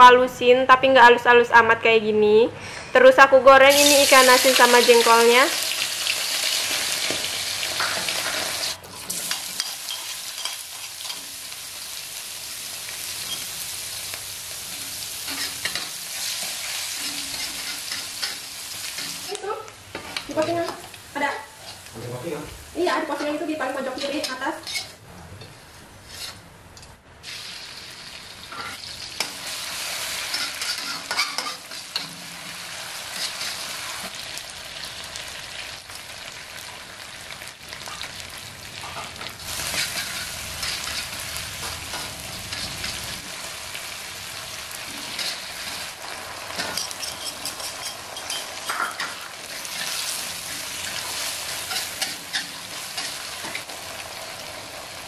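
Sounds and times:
metal spatula scraping a wok: 15.2s - 19.2s, 23.2s - 26.5s, 28.5s - 34.2s, 39.5s - 41.2s, 45.0s - 45.8s, 46.5s - 53.7s
paste sizzling in oil: 27.2s - 37.2s, 39.4s - 55.0s.

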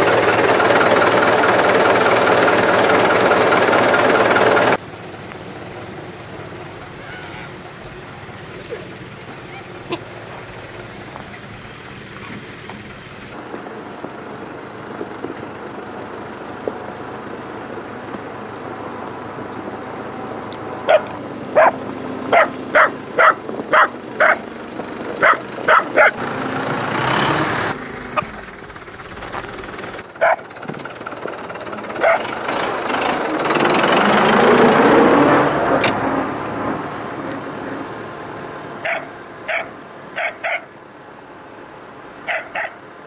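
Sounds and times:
tractor diesel engine running: 0.0s - 43.0s
small dog yapping: 20.9s - 24.4s, 30.2s - 30.4s, 32.0s - 32.2s, 38.8s - 40.7s, 42.3s - 42.8s.

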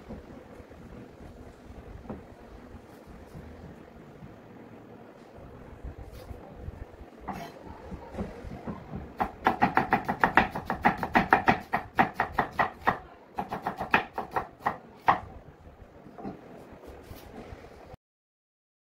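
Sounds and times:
knife slicing onion on wooden board: 9.2s - 15.3s.

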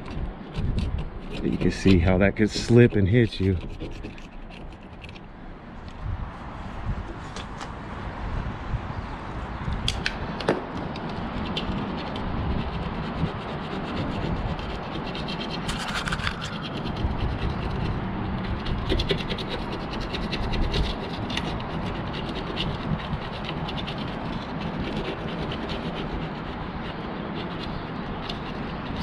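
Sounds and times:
screwdriver scraping metal channel: 0.0s - 5.2s, 11.0s - 29.0s.

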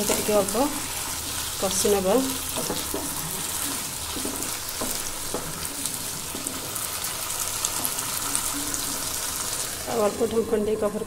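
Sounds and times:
vegetables sizzling in oil: 0.0s - 11.0s
wooden spatula scraping pan: 0.1s - 7.1s.

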